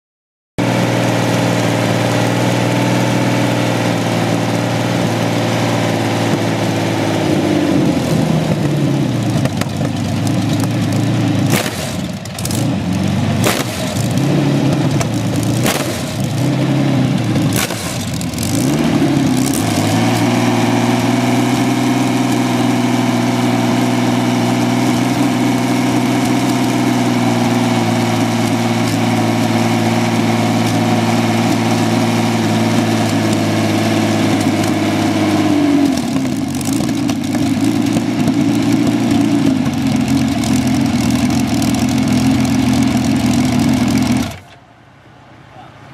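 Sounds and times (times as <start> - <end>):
engine running and revving: 0.6 - 44.6
engine cracks: 8.6 - 21.6, 30.4 - 44.7.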